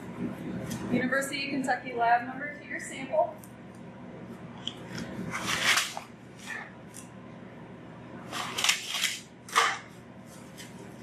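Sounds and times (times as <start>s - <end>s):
paper bag crinkling: 5.0s - 6.1s.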